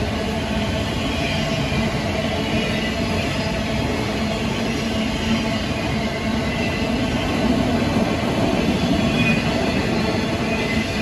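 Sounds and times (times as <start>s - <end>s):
freight train rumbling past: 0.0s - 11.0s
faint high wheel squeals: 8.7s - 11.0s.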